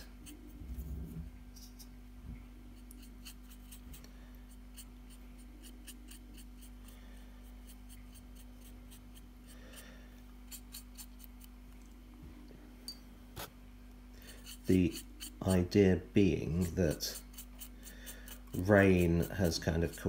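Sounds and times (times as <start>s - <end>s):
paintbrush ticking and scratching: 0.0s - 0.8s, 2.8s - 9.6s, 10.4s - 11.8s, 14.2s - 20.0s
steady low hum: 0.0s - 20.0s.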